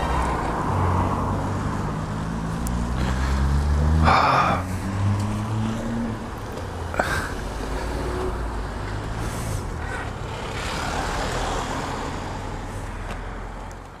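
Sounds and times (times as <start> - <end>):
wind and road noise: 0.0 - 14.0.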